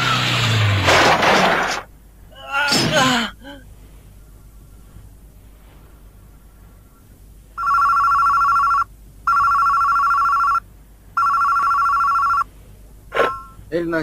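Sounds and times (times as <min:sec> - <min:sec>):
desk telephone ringing: 0:07.6 - 0:10.6, 0:11.2 - 0:12.4.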